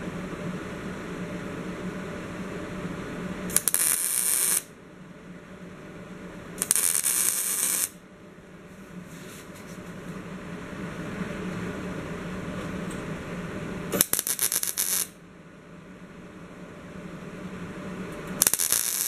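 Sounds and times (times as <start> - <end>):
steady low hum: 0.0 - 19.0
welding crackling and hissing: 3.5 - 4.7, 6.6 - 8.0, 13.9 - 15.2, 18.3 - 19.0.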